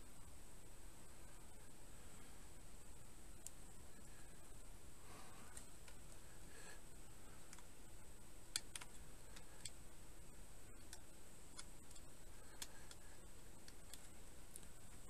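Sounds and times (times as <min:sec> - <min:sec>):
faint high whine: 0:00.0 - 0:15.0
small plastic clicks of cable handling: 0:10.8 - 0:15.0.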